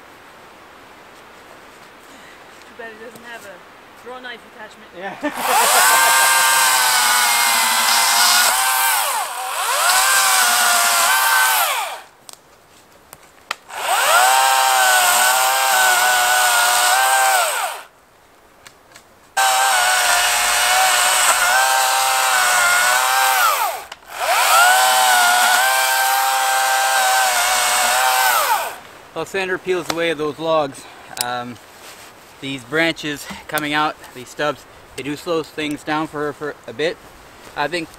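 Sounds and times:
battery chainsaw motor whine: 5.3 - 12.1, 13.7 - 17.9, 19.4 - 28.8.

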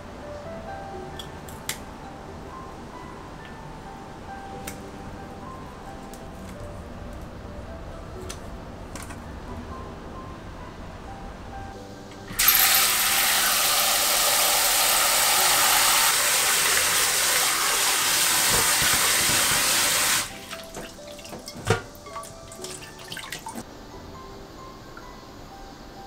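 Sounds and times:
tap running into glass bowl: 18.4 - 20.1
small splashes and drips: 20.5 - 23.6.

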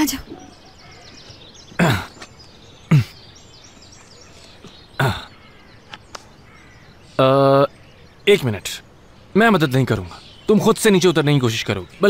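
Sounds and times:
man grunting with effort: 1.8 - 2.2, 5.0 - 5.3.

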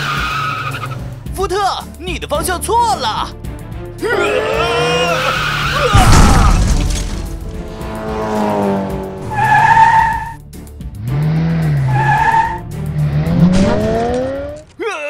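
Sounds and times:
tires screeching: 0.0 - 1.3, 4.1 - 14.8
background music: 0.0 - 15.0.

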